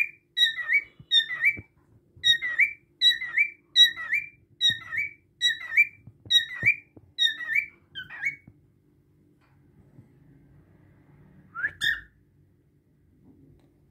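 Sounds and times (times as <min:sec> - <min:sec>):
cockatiel whistling: 0:00.0 - 0:08.5, 0:11.5 - 0:12.2.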